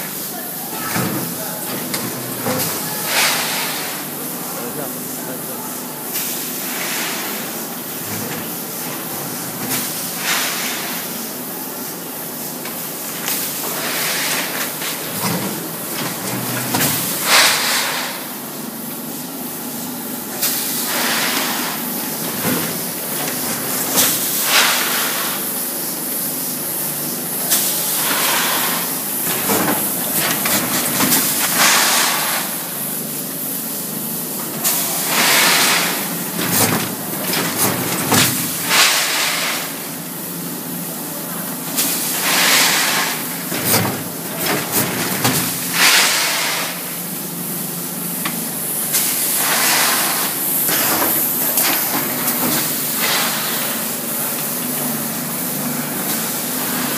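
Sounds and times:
machine hissing: 0:33.9 - 0:40.2, 0:41.7 - 0:54.4.

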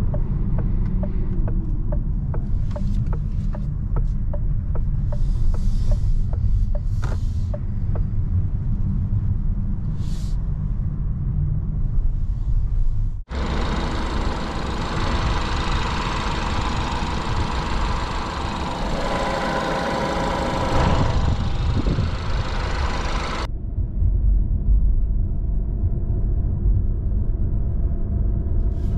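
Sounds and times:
road and engine rumble in cabin: 0:00.0 - 0:28.9
petrol engine running with hiss: 0:05.1 - 0:07.7, 0:13.3 - 0:23.5.

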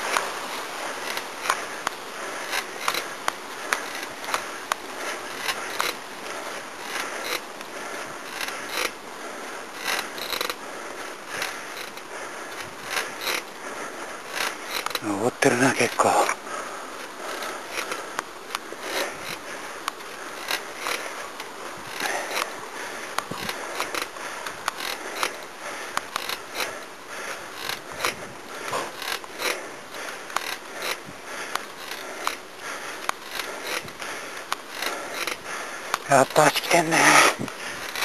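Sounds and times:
bicycle clicks and rattles: 0:00.0 - 0:15.2, 0:15.8 - 0:38.0
bicycle tyre noise: 0:00.0 - 0:38.0.

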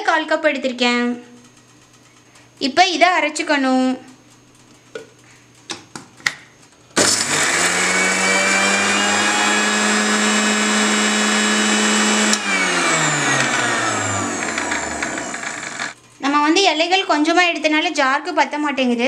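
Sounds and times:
mixer grinder motor whine: 0:07.0 - 0:16.0.

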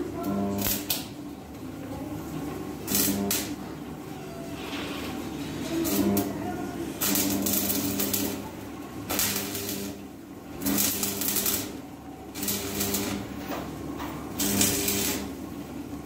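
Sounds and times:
welding arc crackling: 0:00.0 - 0:01.2, 0:02.7 - 0:03.7, 0:05.0 - 0:13.5, 0:14.3 - 0:15.5
low electrical buzz: 0:00.0 - 0:16.0.

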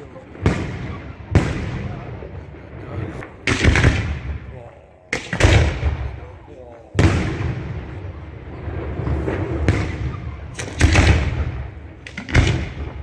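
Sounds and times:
sharp bangs: 0:03.0 - 0:13.0
firework shells bursting: 0:09.2 - 0:13.0.

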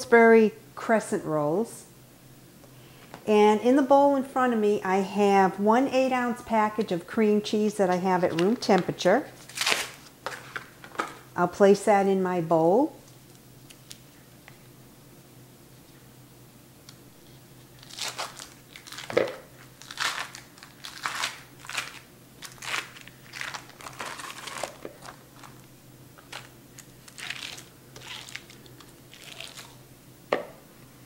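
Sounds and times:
foil wrapper crinkling: 0:08.3 - 0:10.6, 0:17.7 - 0:29.8.

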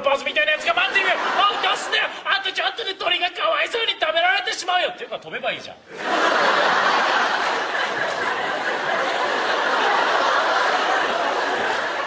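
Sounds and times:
large audience laughing: 0:00.1 - 0:02.3, 0:05.9 - 0:12.0.

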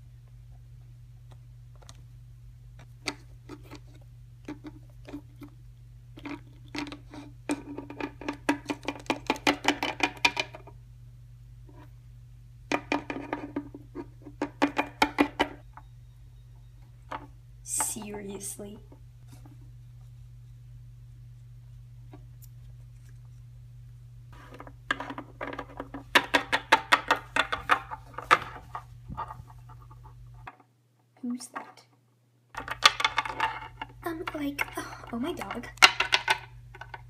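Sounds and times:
plastic toys tapping on wood: 0:14.4 - 0:15.6, 0:24.9 - 0:28.6, 0:32.6 - 0:37.0.

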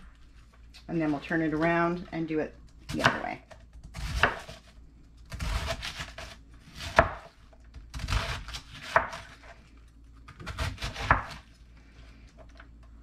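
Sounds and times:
knife slicing cabbage: 0:03.9 - 0:09.5, 0:10.3 - 0:11.5.

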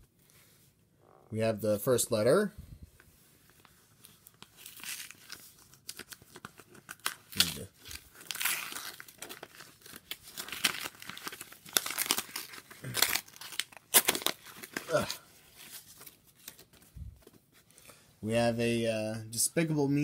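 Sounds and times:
envelope being torn open: 0:04.3 - 0:16.7.

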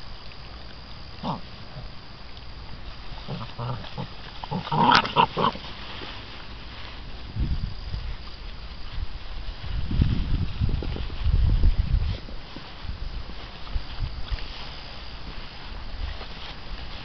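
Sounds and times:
puppies making short vocal noises: 0:00.2 - 0:06.9.

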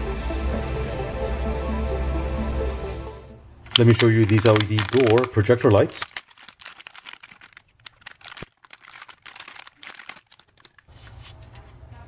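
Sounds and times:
plastic bag crinkling: 0:03.7 - 0:11.1.

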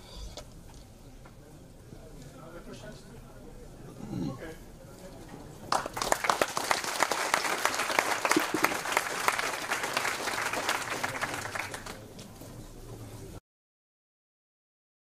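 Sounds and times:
audience applauding: 0:05.7 - 0:12.1.

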